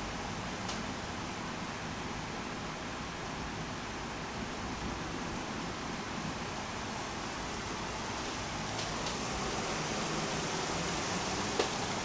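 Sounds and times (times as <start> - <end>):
heavy rain hissing: 7.1 - 12.0.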